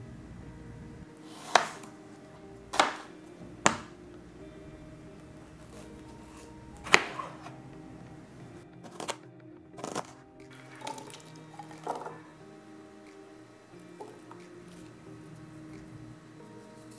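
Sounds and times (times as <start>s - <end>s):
faint background music: 0.0s - 16.9s
knife slicing vegetables: 1.2s - 2.0s, 2.7s - 3.9s.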